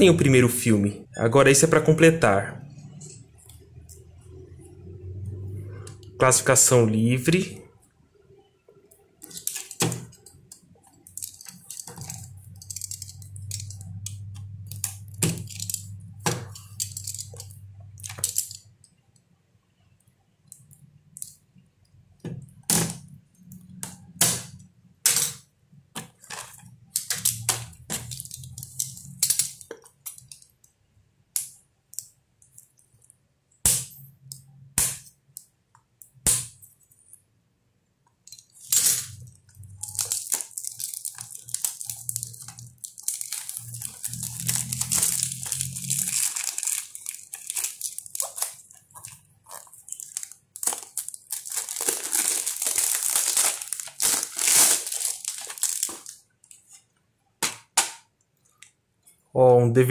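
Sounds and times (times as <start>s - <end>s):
plastic shrink-wrap tearing: 39.7s - 56.2s.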